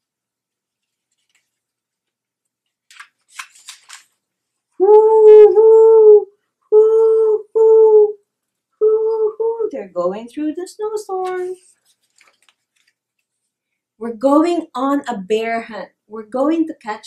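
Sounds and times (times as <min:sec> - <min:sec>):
woman imitating howling wind: 0:04.8 - 0:08.2, 0:08.8 - 0:09.8.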